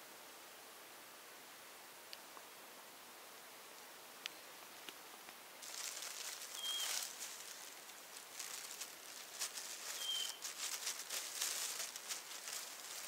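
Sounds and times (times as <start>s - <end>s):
rustling of tall grass: 4.6s - 13.0s
bird chirping: 6.5s - 7.1s, 9.8s - 10.5s.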